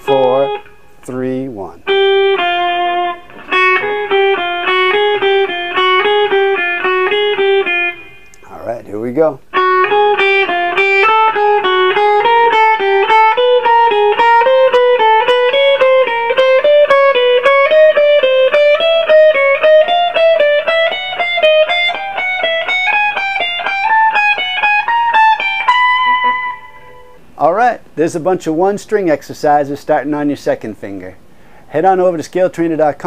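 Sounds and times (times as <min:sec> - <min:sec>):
electric guitar climbing notes: 0:00.0 - 0:08.5, 0:09.4 - 0:27.4.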